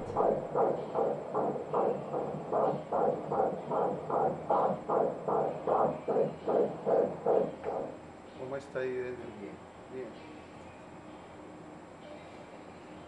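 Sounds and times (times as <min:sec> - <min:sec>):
fetal heartbeat on doppler speaker: 0:00.0 - 0:08.0.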